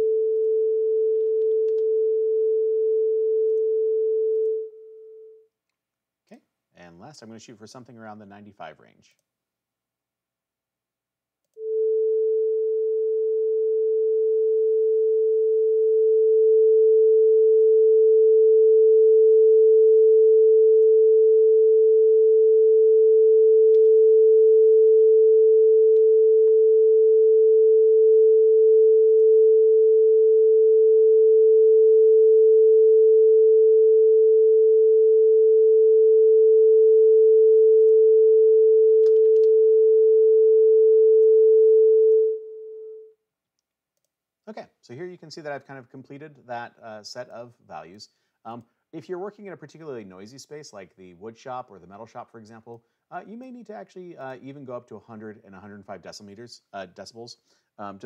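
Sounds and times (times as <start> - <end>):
steady sine tone: 11.6 - 43.1.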